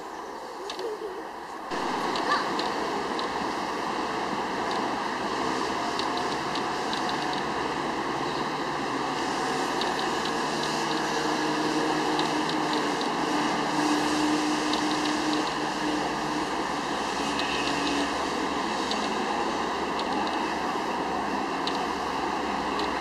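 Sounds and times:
steady rushing background noise: 0.0 - 23.0
autofocus motor whirring: 1.7 - 23.0
small ticks: 17.4 - 18.0.

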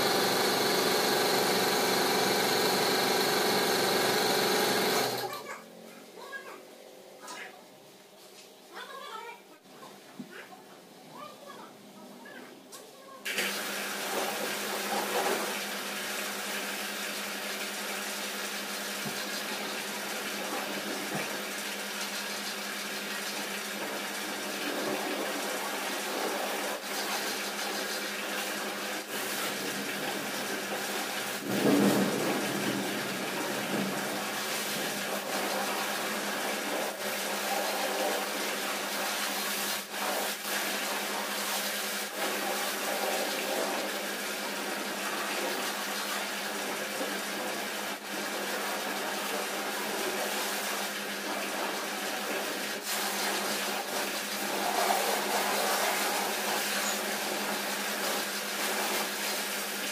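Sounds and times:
steady hum: 0.0 - 5.3
water spraying from hose: 0.0 - 5.4, 13.3 - 59.9.

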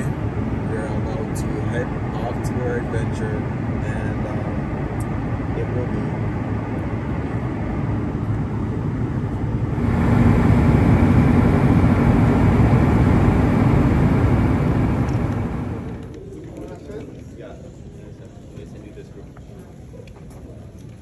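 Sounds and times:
moving vehicle rumble: 0.0 - 16.3
low hum: 0.0 - 16.4.

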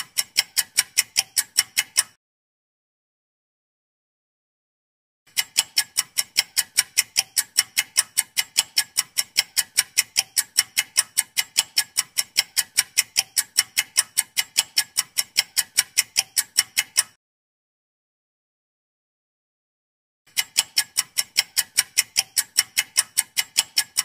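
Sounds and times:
clock ticking: 0.0 - 2.2, 5.3 - 17.2, 20.3 - 24.0.

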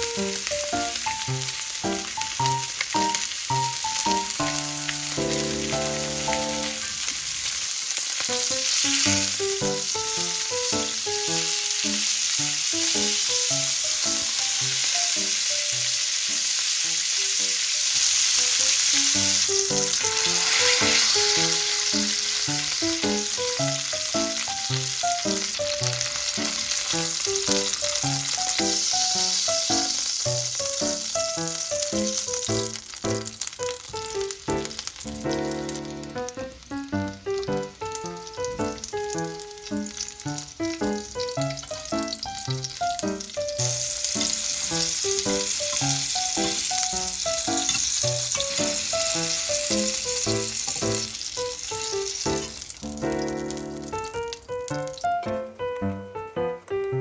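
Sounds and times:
steaks sizzling in oil: 0.0 - 55.3
light background music: 13.0 - 33.9, 53.1 - 57.0.

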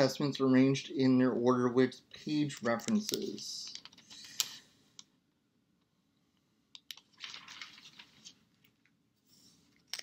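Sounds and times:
pages being turned by hand: 7.0 - 8.8.

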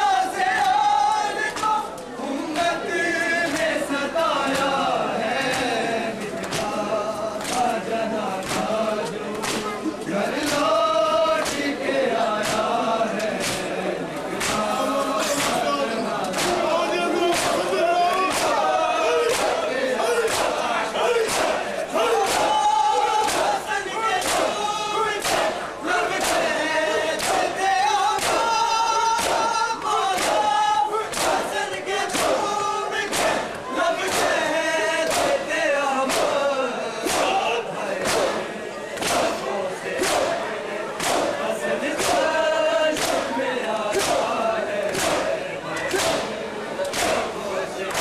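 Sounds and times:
crowd chanting in unison: 0.0 - 48.0
chest beating slaps: 8.4 - 9.8, 17.3 - 18.7, 19.3 - 22.6, 23.2 - 23.6, 24.2 - 24.6, 25.2 - 26.5, 28.1 - 31.5, 32.1 - 34.4, 35.0 - 35.5, 36.1 - 36.4, 37.0 - 39.4, 40.0 - 41.4, 42.0 - 48.0
chest-beating slaps: 8.4 - 9.8, 10.4 - 10.7, 11.4 - 11.8, 21.2 - 21.6, 35.0 - 35.4, 37.0 - 37.4, 40.0 - 40.4, 41.0 - 41.4, 42.0 - 47.3.

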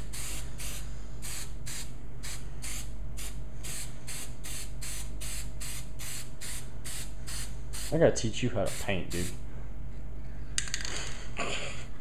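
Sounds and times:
spray paint can hissing: 0.0 - 7.9.

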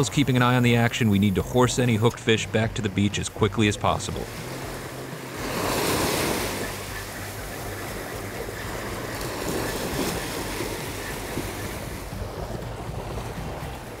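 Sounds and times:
surf waves washing on sand: 0.0 - 14.0
wind buffeting microphone: 4.2 - 14.0.

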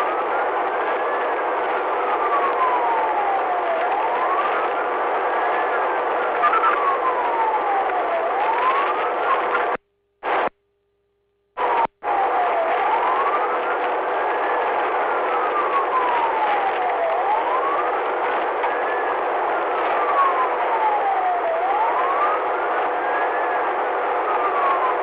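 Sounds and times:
police siren wailing: 0.0 - 9.8, 11.6 - 25.0.

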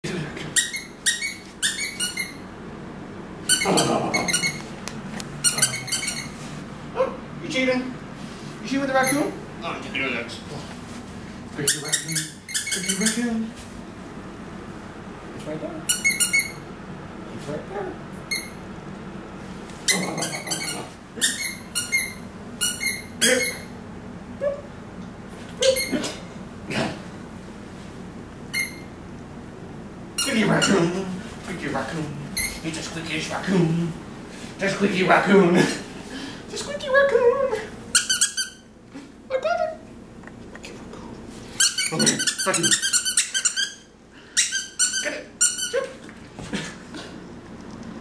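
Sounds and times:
squeaky dog toy squeaks: 0.6 - 2.4, 5.4 - 6.3, 11.7 - 13.2, 15.9 - 16.6, 19.9 - 23.7, 25.6 - 26.0, 28.5 - 28.9, 37.9 - 38.7, 41.6 - 45.9.

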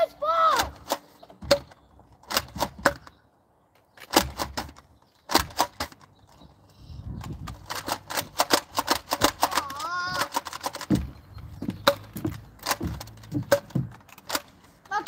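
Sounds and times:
plastic toy blaster clicks: 7.5 - 10.9.

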